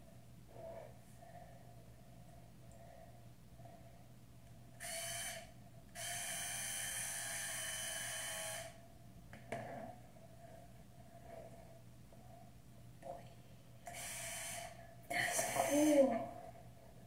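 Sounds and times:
hair iron hissing with steam: 13.9s - 16.1s.

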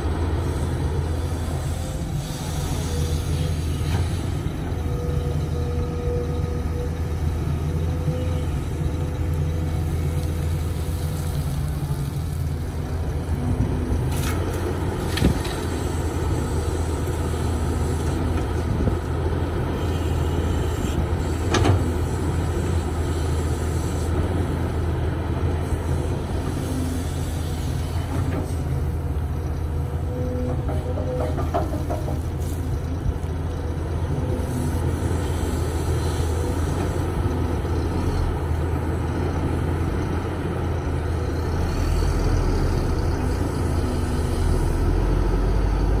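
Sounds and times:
excavator diesel engine running: 0.0s - 46.0s.

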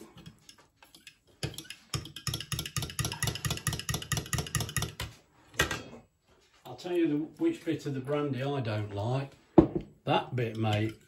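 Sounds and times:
spoon clinking against glass jug: 10.4s - 11.0s.

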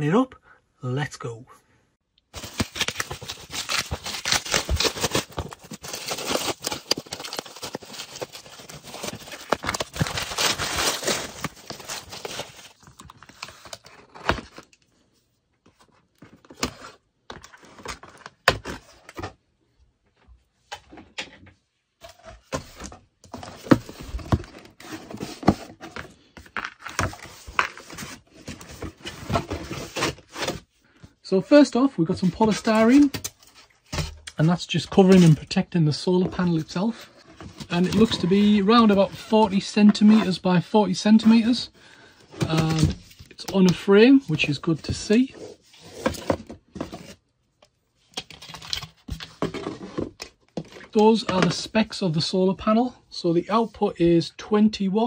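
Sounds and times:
plastic wrap crinkling: 2.4s - 13.2s.

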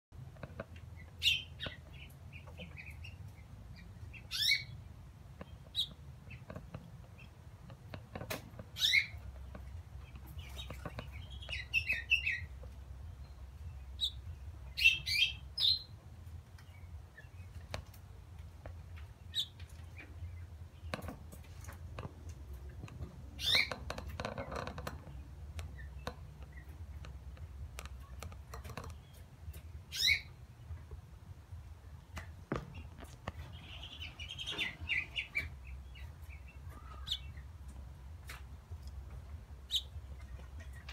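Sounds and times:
faint low hum: 0.2s - 40.9s
finch chirping: 0.8s - 16.0s, 19.0s - 21.8s, 22.7s - 30.4s, 32.5s - 37.8s, 38.4s - 40.9s.

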